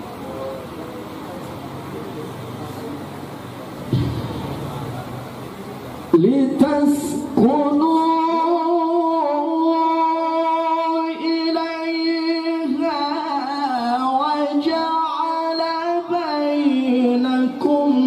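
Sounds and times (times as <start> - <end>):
man reciting melodically into microphone: 6.1 - 18.0.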